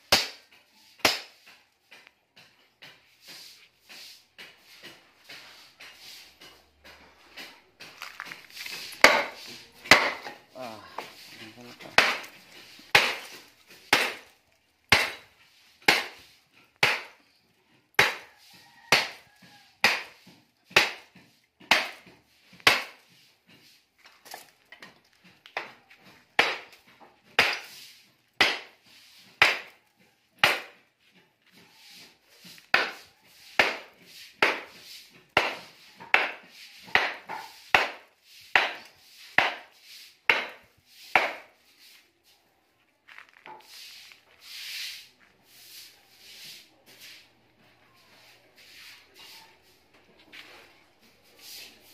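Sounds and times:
hand tool striking metal coil: 0:04.4 - 0:17.2.

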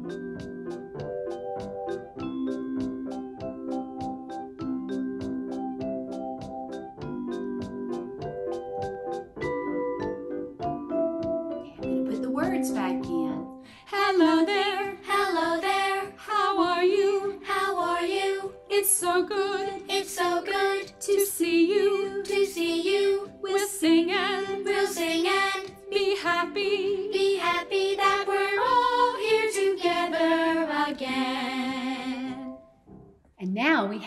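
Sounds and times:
woman singing: 0:12.1 - 0:27.7.

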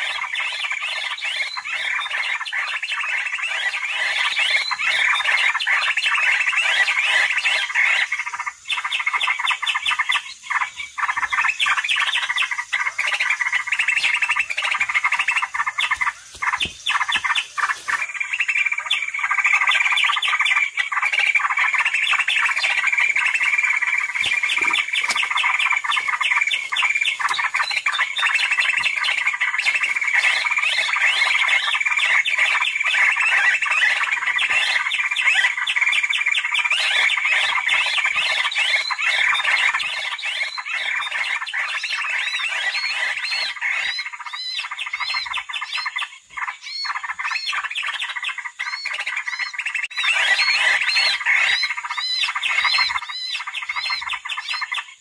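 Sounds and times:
bird chattering rapid high notes: 0:11.0 - 0:31.7.

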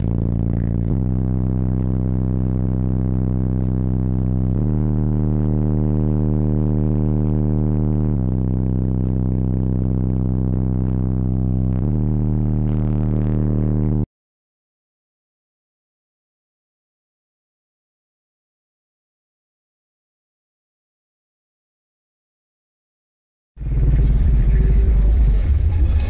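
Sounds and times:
loud subwoofer bass music: 0:00.0 - 0:14.1, 0:23.6 - 0:26.0.

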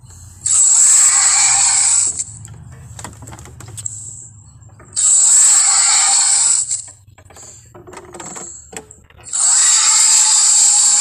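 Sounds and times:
harsh dinosaur roar: 0:00.5 - 0:02.2, 0:09.3 - 0:11.0.

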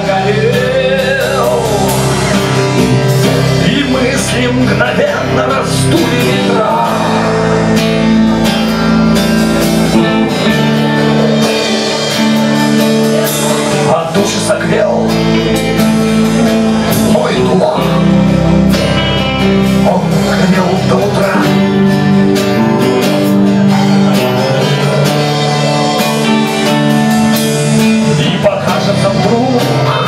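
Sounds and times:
drum kit: 0:00.0 - 0:30.0
strummed guitar: 0:00.0 - 0:30.0.

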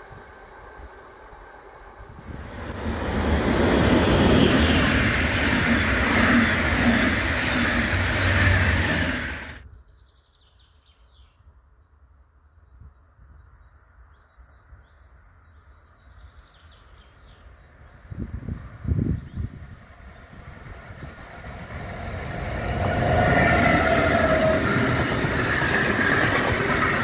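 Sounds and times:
faint birdsong: 0:00.0 - 0:12.0
train wheels rushing on rails: 0:02.2 - 0:09.6, 0:20.0 - 0:27.0.

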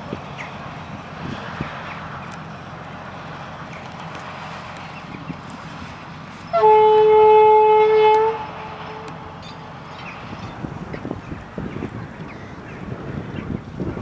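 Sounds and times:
locomotive horn blast: 0:06.5 - 0:09.4.

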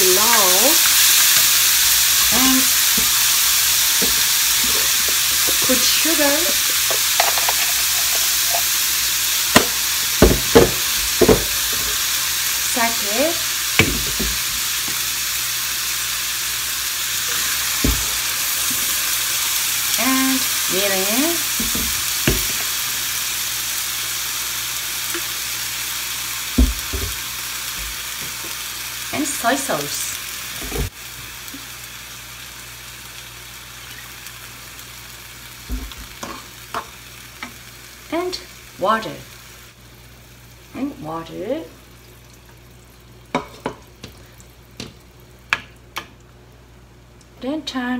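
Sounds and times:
meat and onion sizzling in pan: 0:00.0 - 0:45.9
metal spoon clinking: 0:07.0 - 0:08.7.

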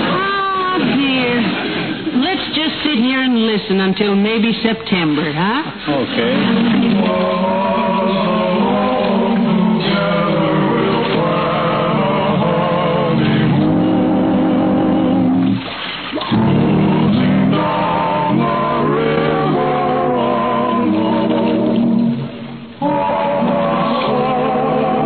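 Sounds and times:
group singing slow song: 0:06.1 - 0:15.6, 0:16.2 - 0:25.0.

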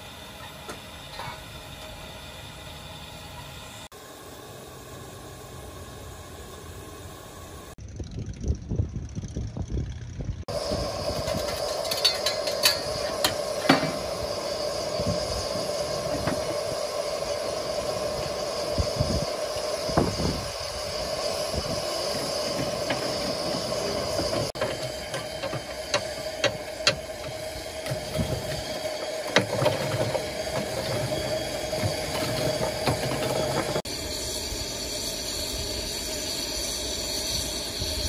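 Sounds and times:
steam hissing: 0:00.0 - 0:07.8, 0:10.5 - 0:38.0
sharp metallic clanks: 0:11.2 - 0:14.2.

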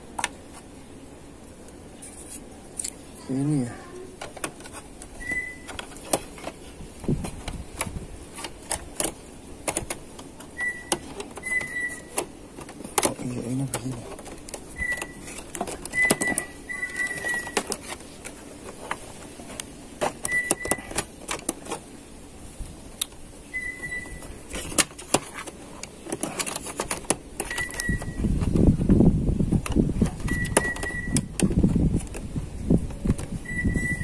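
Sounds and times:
plastic and metal parts clicking: 0:04.2 - 0:21.9, 0:24.5 - 0:28.7.

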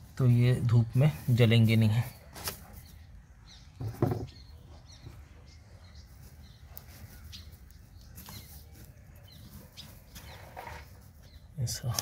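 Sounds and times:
hand crumbling soil: 0:06.0 - 0:12.0.

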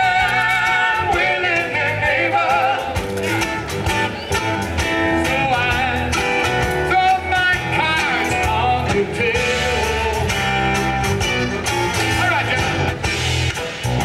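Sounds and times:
live band playing: 0:00.0 - 0:14.0.

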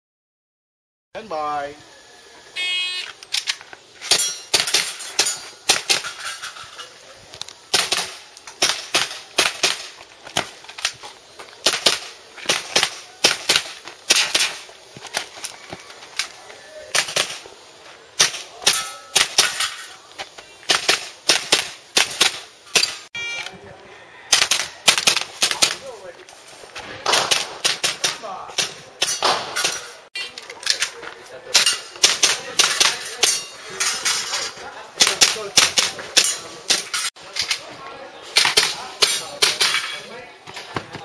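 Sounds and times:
pistol shots: 0:27.0 - 0:29.9.

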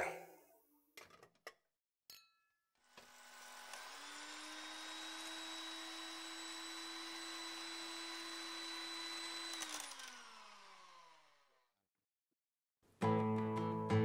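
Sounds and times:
small electric motor whirring: 0:02.8 - 0:11.7.

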